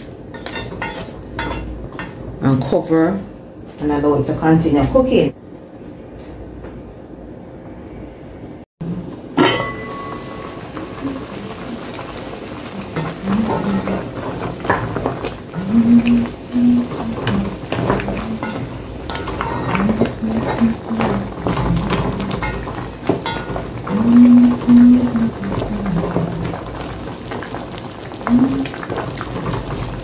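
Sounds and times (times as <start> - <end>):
pot simmering: 8.8 - 30.0
metal clank with ring: 9.4 - 10.4
wooden spoon stirring in a pot: 9.5 - 30.0.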